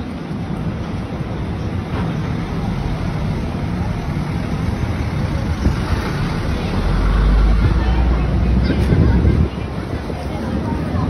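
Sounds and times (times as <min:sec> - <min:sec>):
city traffic rumbling: 0:00.0 - 0:11.0.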